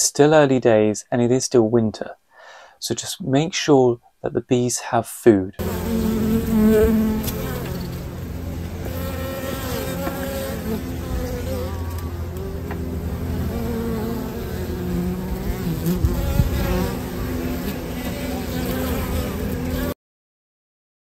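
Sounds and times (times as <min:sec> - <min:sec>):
honeybees buzzing: 0:05.6 - 0:20.0.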